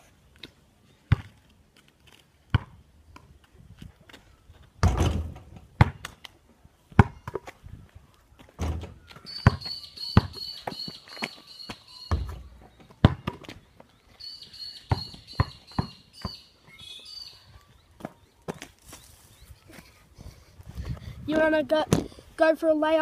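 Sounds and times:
ball hitting backboard and rim: 4.8s - 6.1s, 8.6s - 10.4s, 12.1s - 13.5s
basketball bouncing: 4.8s - 6.1s, 8.6s - 10.8s, 12.1s - 13.5s, 14.9s - 16.4s
high pulsing chirp: 9.2s - 13.0s, 13.9s - 19.7s.

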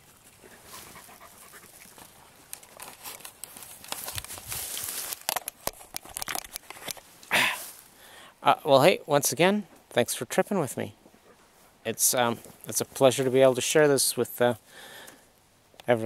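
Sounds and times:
dry grass crackling: 0.0s - 8.0s
camera handling noise: 2.5s - 7.1s
loud breath: 7.3s - 8.4s, 14.7s - 15.3s.

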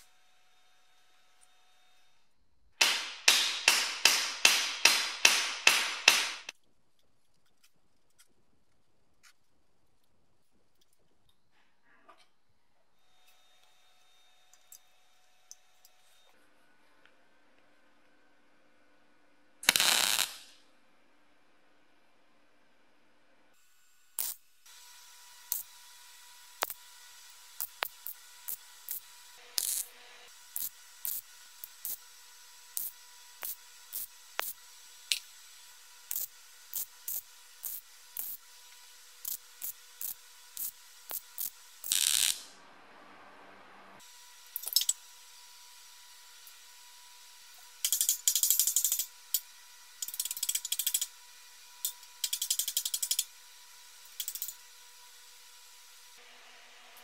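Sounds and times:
welder crackling bursts: 2.8s - 6.6s, 19.6s - 20.6s, 24.1s - 42.6s.

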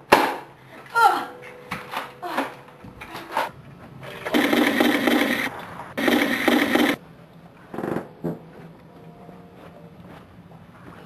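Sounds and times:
electric rifle automatic fire: 4.3s - 7.0s.

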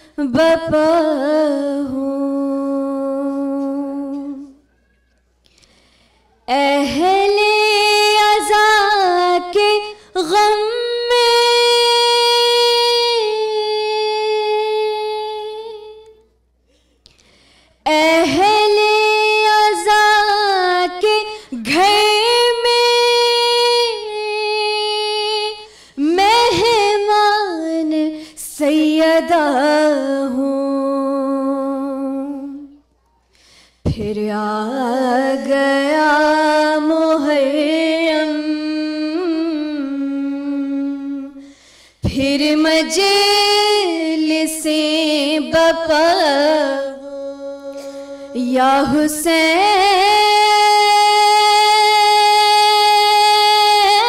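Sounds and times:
women chanting a lament: 43.6s - 50.9s.

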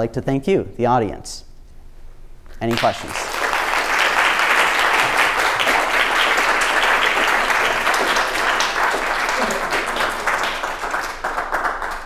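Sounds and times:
audience applauding: 2.7s - 12.0s.

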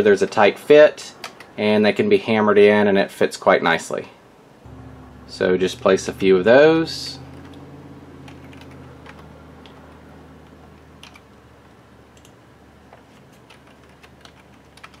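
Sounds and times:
low hum: 4.7s - 12.8s
keyboard and mouse clicks: 11.0s - 11.3s, 12.2s - 15.0s.

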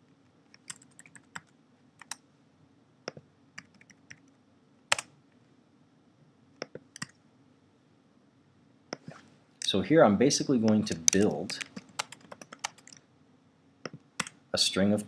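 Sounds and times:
computer keyboard keystrokes: 6.6s - 7.2s, 10.7s - 13.0s.

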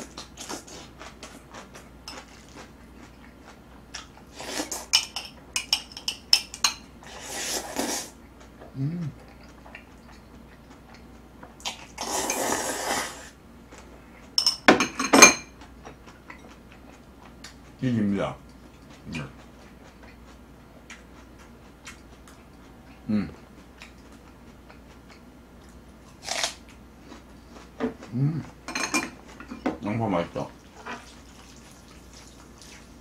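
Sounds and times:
noodles being slurped: 7.0s - 8.1s, 11.9s - 13.3s.

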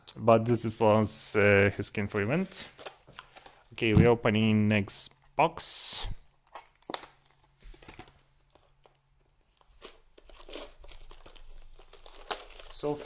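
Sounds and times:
packaging crackling and tearing: 6.4s - 13.0s.

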